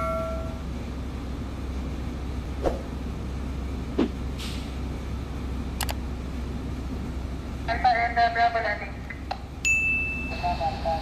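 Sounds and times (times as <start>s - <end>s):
ringing chime: 0.0s - 0.6s, 9.6s - 10.4s
low background rumble: 0.0s - 11.0s.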